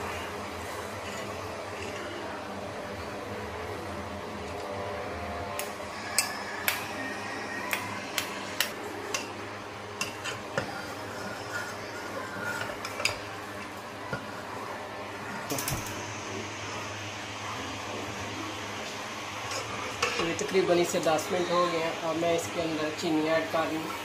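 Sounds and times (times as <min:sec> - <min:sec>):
metal ladle scraping a pot: 0:00.7 - 0:02.2, 0:10.0 - 0:13.2.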